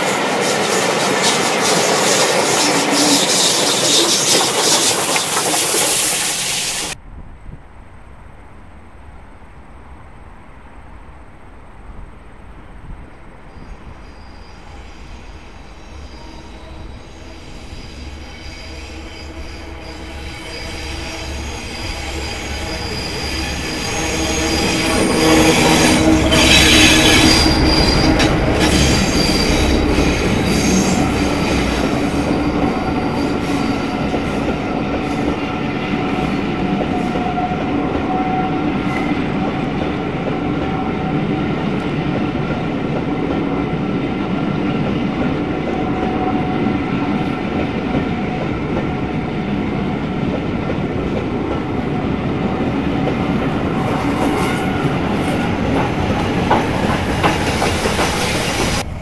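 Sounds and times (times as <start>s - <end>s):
train wheels rolling: 0.0s - 7.0s, 12.7s - 59.0s
wheel squeal: 0.0s - 7.0s, 13.6s - 39.7s
diesel locomotive engine: 0.0s - 59.0s.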